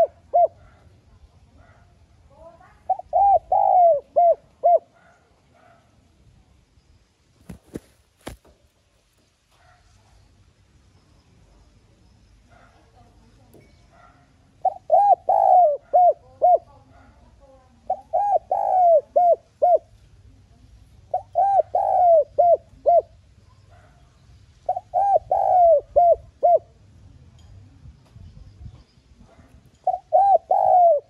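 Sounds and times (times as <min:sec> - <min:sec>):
dove cooing: 0:00.0 - 0:01.0, 0:02.7 - 0:05.8, 0:14.5 - 0:19.9, 0:21.0 - 0:23.9, 0:24.7 - 0:26.9, 0:29.3 - 0:31.0.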